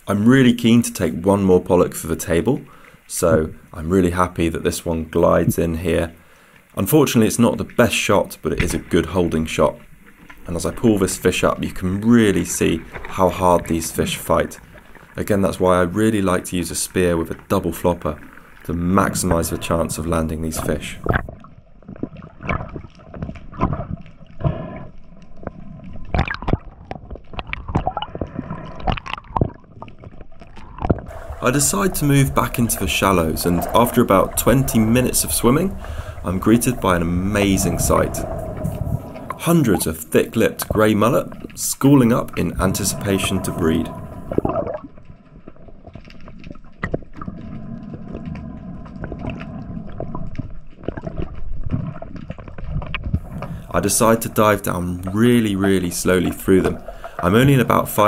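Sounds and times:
underwater gurgling and bubbling: 17.1 - 58.0.

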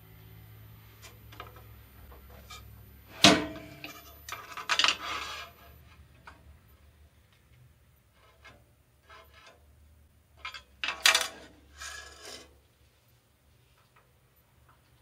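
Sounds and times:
metal scraping and clattering: 2.2 - 6.0, 10.4 - 12.5
metal clank on metal table: 2.4 - 5.2.

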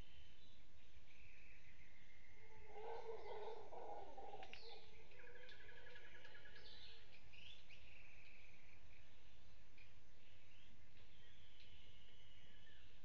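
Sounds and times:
forest birds chirping: 0.0 - 13.0
howler monkey call: 2.4 - 6.8.

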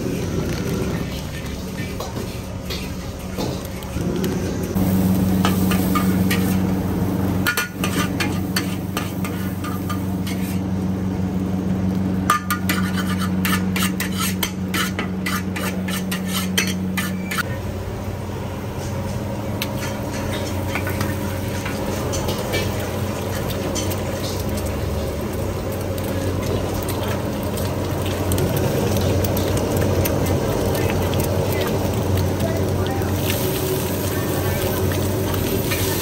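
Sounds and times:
metal ladle scraping a wok: 7.4 - 10.6, 12.3 - 17.5.

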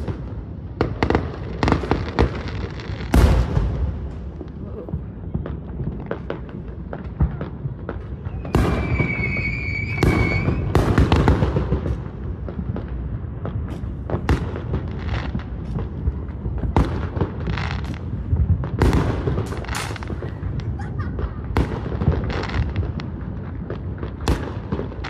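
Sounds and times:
fireworks booming and popping: 0.0 - 25.0
high whistle: 8.3 - 10.7.

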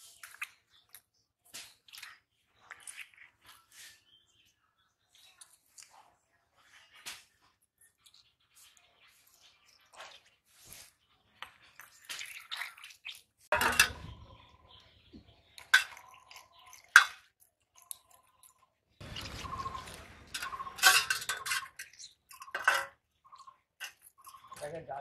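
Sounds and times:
wet handling sounds: 9.2 - 14.0
fish clinking on steel plate: 13.5 - 14.2, 15.6 - 17.3, 20.3 - 23.0.

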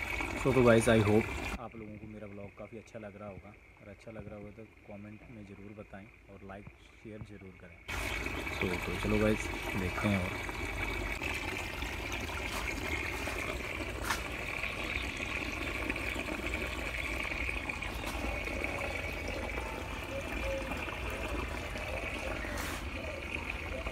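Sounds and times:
water running through hose: 0.0 - 2.2, 7.2 - 23.9.

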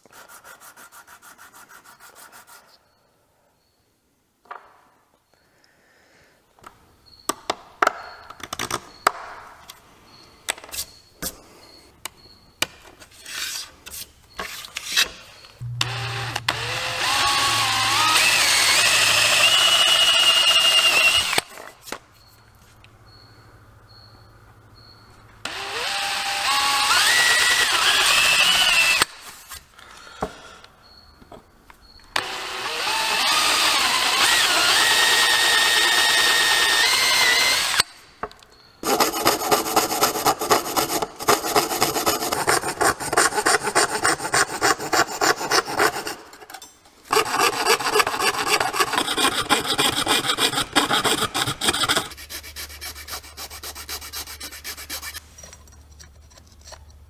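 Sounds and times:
electric drill whining: 15.6 - 21.6, 25.4 - 29.1, 32.2 - 37.9
fret saw cutting: 15.6 - 21.6, 25.4 - 29.2, 32.2 - 37.9, 47.1 - 55.2
file rasping: 38.8 - 46.5, 47.1 - 55.4.

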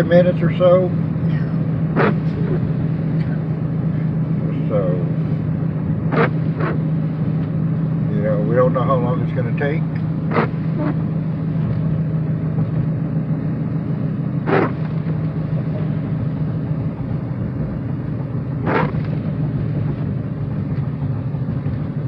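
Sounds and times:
car cabin drone: 0.0 - 22.0
windshield wipers swishing: 14.4 - 15.1, 18.6 - 22.0.

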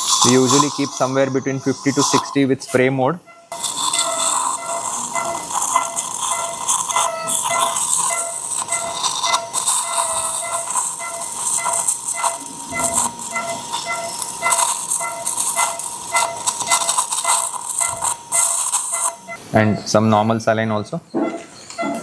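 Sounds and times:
steady hiss with crackling: 0.0 - 21.1
electrosurgical tone with beeps: 0.0 - 22.0.

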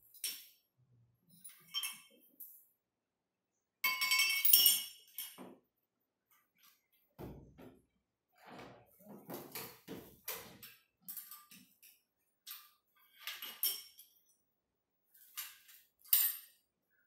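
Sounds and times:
metal tools clinking and scraping: 0.0 - 0.6, 1.3 - 2.7, 10.4 - 14.3, 15.1 - 16.6.

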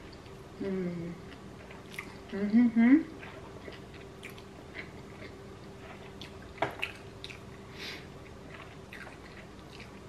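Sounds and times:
faint steady hum: 0.0 - 10.0
wet mouth chewing clicks: 3.7 - 4.5.

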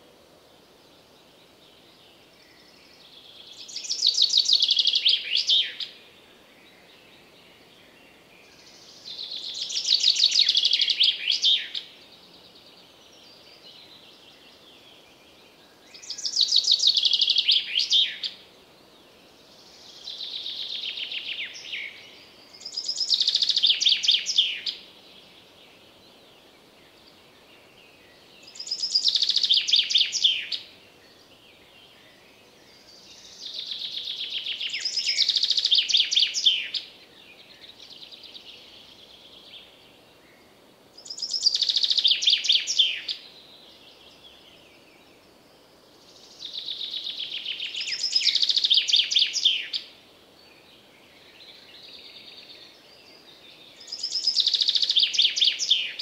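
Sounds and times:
chaffinch singing: 8.5 - 18.5, 19.7 - 39.9, 41.0 - 45.4, 46.1 - 56.0.

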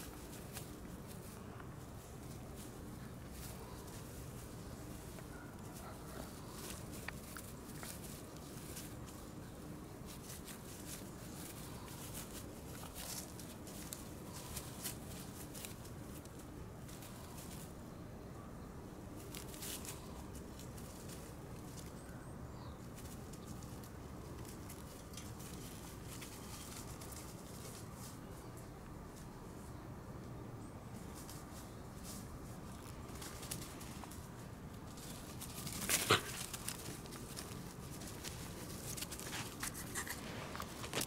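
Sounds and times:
dry grass rustling under paws: 0.0 - 18.0, 18.9 - 41.0
faint outdoor hiss: 0.0 - 41.0.

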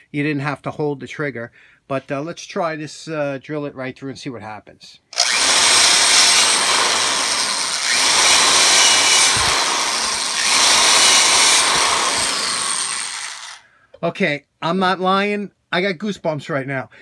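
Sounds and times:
electric drill boring through wood: 5.2 - 13.6
high motor whine: 5.2 - 13.6.

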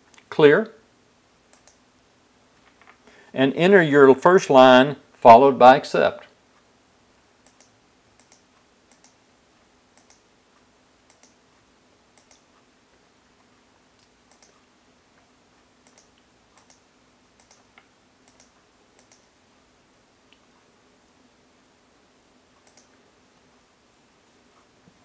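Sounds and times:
faint keyboard clicks: 1.5 - 1.8, 12.2 - 12.5, 14.0 - 14.6, 17.4 - 19.3, 22.6 - 23.0.

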